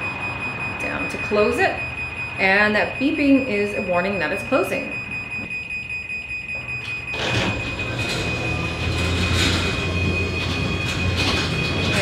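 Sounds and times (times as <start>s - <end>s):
high warning tone: 0.0s - 12.0s
garage door opener running: 5.1s - 12.0s
door rolling down tracks: 7.1s - 12.0s.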